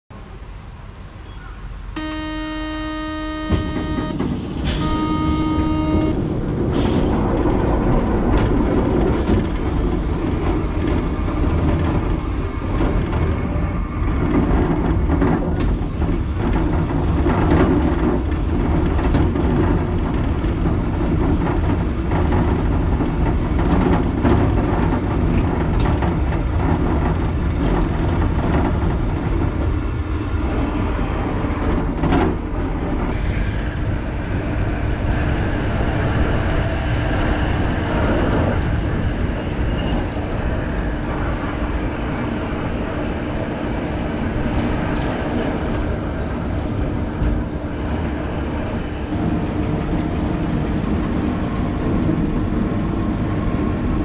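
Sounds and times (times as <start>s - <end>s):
ride car rumbling on rail: 0.1s - 54.0s
departure buzzer tones: 2.0s - 6.2s.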